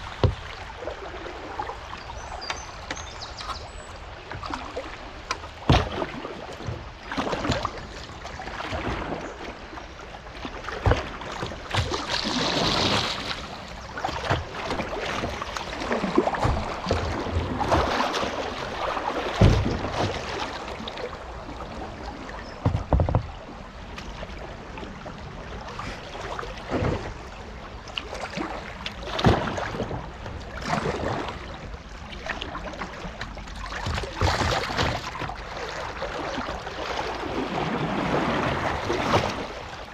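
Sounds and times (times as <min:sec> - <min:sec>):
water rushing around kayak: 0:00.0 - 0:39.9
dull thumps: 0:19.4 - 0:20.0, 0:22.6 - 0:23.4.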